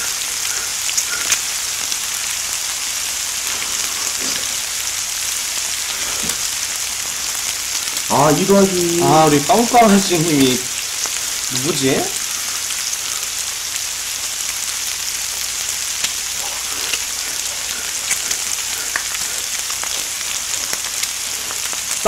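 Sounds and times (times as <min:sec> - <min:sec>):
faint pops and crackles: 0:00.0 - 0:01.9, 0:15.4 - 0:22.0
meat sizzling on a griddle: 0:00.0 - 0:22.0.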